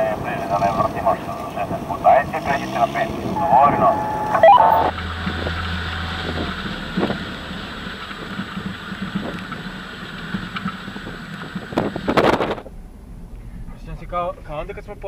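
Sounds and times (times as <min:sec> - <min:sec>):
off-road vehicle engine running: 0:00.0 - 0:15.0
wind noise on microphone: 0:03.0 - 0:07.5, 0:11.0 - 0:13.8
low hum: 0:03.2 - 0:08.6.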